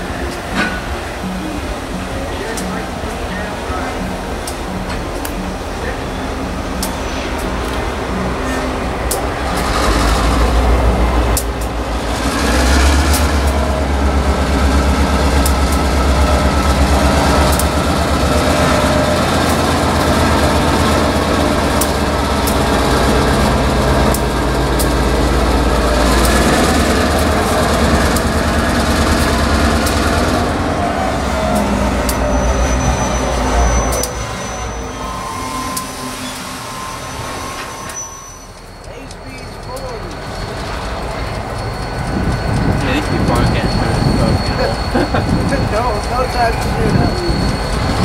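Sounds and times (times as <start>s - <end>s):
diesel locomotive engine drone: 0.0s - 48.0s.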